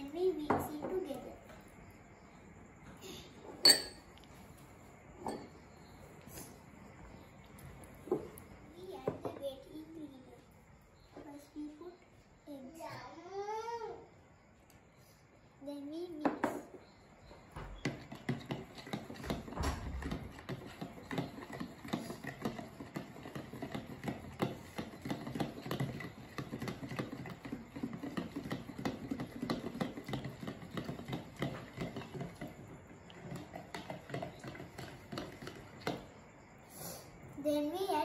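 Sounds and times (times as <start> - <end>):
fork beating eggs in a jug: 17.8 - 36.2.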